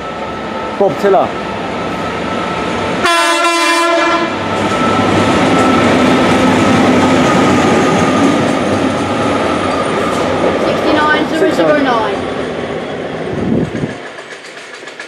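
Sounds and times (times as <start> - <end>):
diesel locomotive engine passing: 0.0 - 15.0
locomotive horn blast: 3.0 - 4.5.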